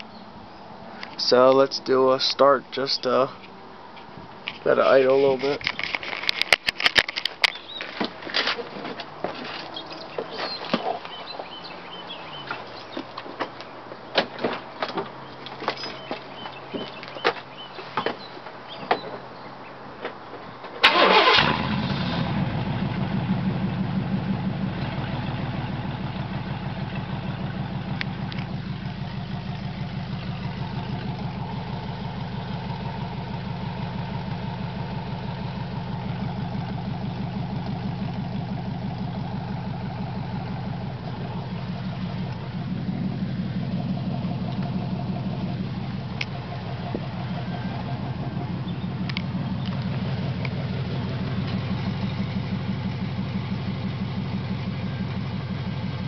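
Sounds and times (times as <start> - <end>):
engine starting and idling: 20.8 - 56.0.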